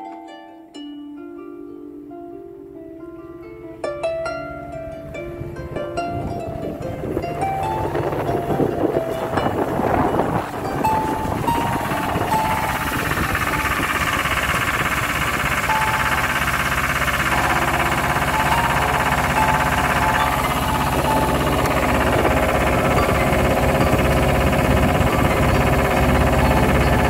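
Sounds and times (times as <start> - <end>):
mixer motor whining hum: 6.2 - 27.0.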